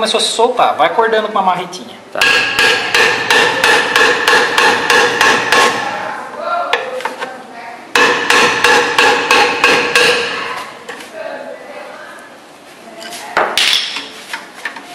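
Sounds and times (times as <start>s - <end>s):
hammer striking metal brake drum: 2.2s - 5.9s, 8.0s - 10.5s.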